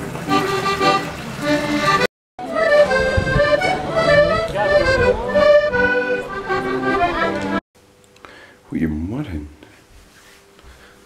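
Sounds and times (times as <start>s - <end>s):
accordions playing: 0.3s - 7.6s
crowd voices: 2.4s - 7.6s.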